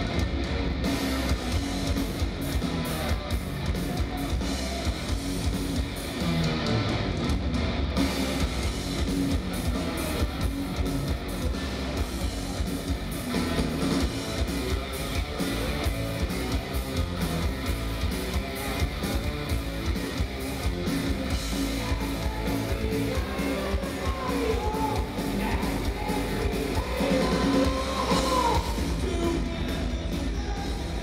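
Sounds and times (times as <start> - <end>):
distorted electric guitars: 0.0 - 31.0
drums: 0.0 - 31.0
person singing: 21.6 - 31.0.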